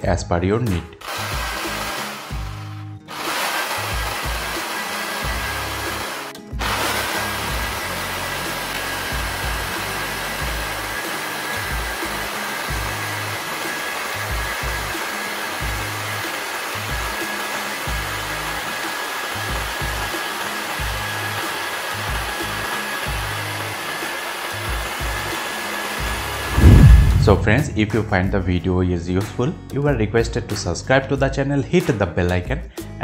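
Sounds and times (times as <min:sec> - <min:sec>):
jigsaw cutting wood: 0:01.0 - 0:26.9.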